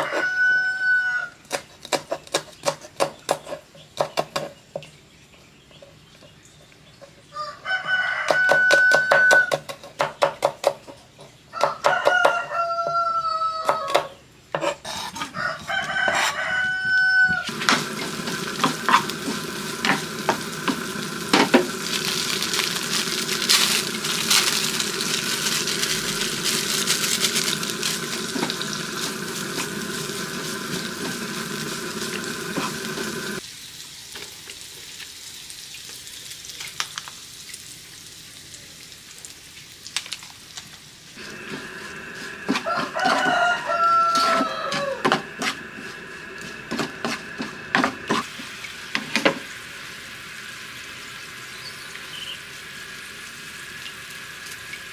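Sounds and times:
rooster crowing: 0.0s - 1.4s, 7.3s - 9.6s, 11.5s - 14.2s, 15.3s - 17.6s, 41.6s - 46.6s
food sizzling in hot oil: 15.9s - 38.4s, 39.4s - 54.9s.

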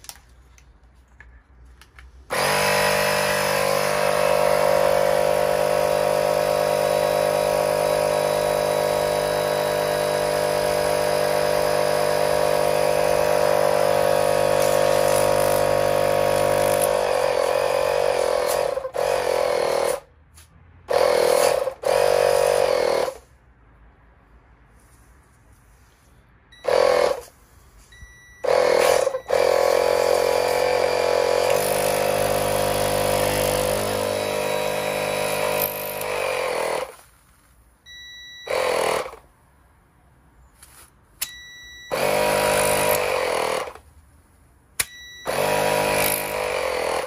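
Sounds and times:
electric air compressor running: 2.3s - 20.1s, 20.9s - 23.2s, 26.6s - 27.3s, 28.4s - 37.0s, 38.5s - 39.2s, 41.9s - 43.8s, 45.3s - 47.0s.

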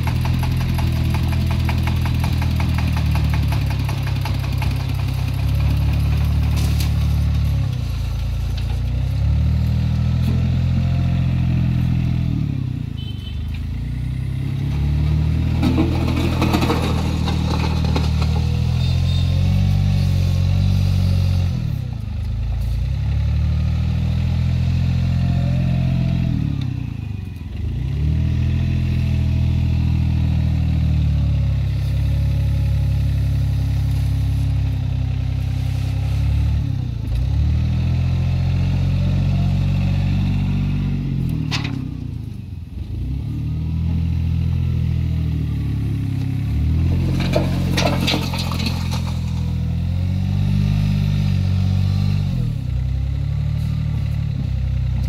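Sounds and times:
wheel loader engine under load: 0.0s - 55.0s
brief clatter: 47.1s - 49.6s.

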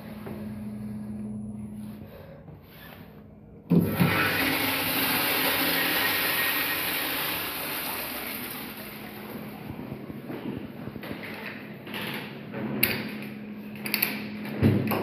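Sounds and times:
urinal flushing: 3.7s - 9.9s.

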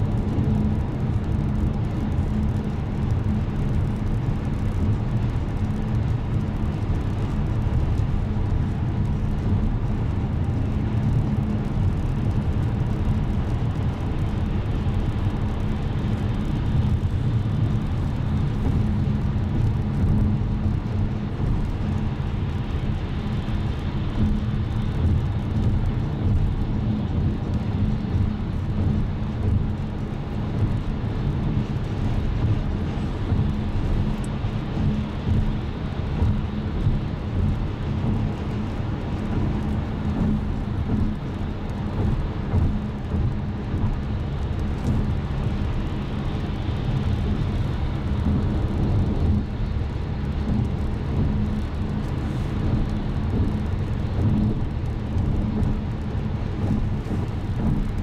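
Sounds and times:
car cabin road rumble: 0.0s - 58.0s.

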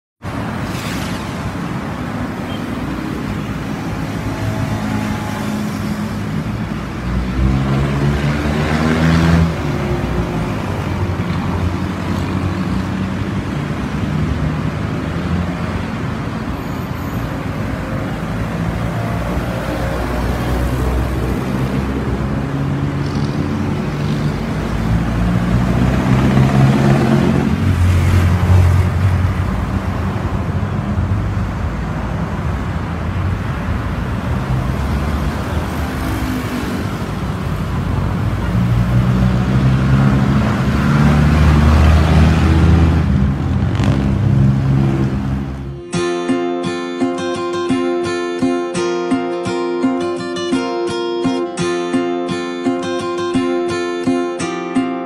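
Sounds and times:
road traffic hum: 0.2s - 55.0s
loud vehicle passing: 0.3s - 16.5s, 17.2s - 45.9s.

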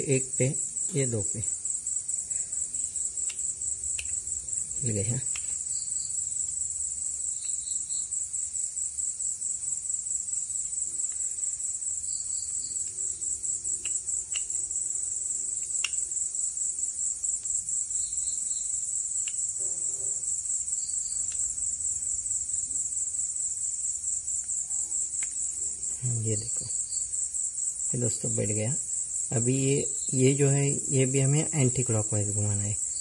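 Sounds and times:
crickets trilling: 0.0s - 33.0s
light clicks of metal parts: 3.1s - 5.7s.

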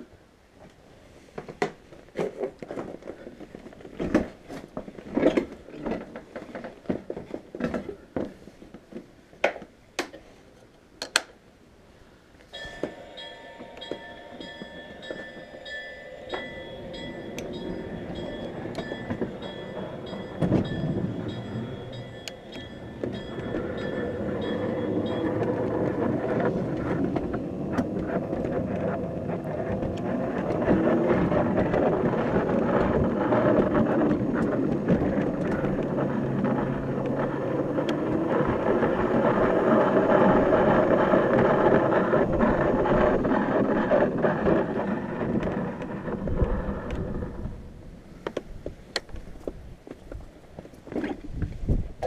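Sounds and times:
steel wheels rolling on rails: 0.0s - 9.1s, 12.5s - 52.0s
wheels clicking on rail joints: 0.0s - 11.4s, 12.4s - 52.0s.

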